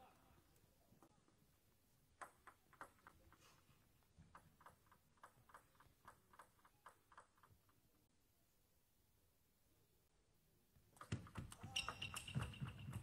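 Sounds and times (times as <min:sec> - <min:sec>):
table tennis ball bouncing: 0:02.2 - 0:03.2.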